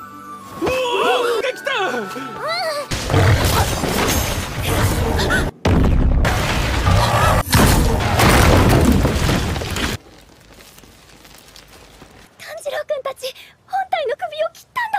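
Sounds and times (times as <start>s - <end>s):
booming crashing impacts: 2.9s - 10.0s.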